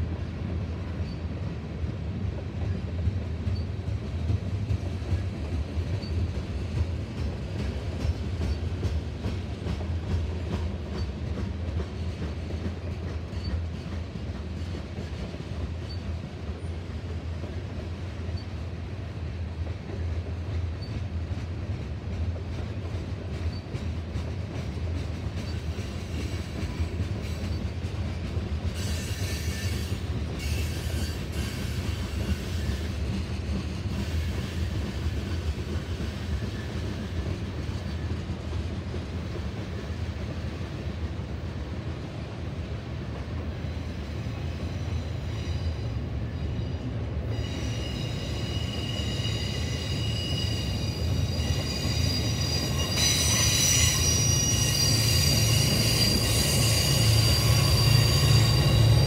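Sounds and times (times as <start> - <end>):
train low rumble: 0.0 - 59.0
wheel flanges squealing: 44.7 - 59.0.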